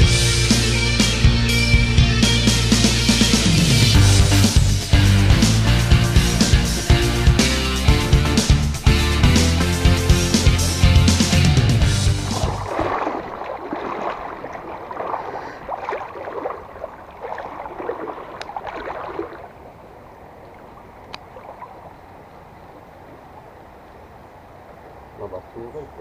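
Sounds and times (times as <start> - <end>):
river current rushing: 0.7 - 26.0
water splashing around wading person: 11.8 - 25.1.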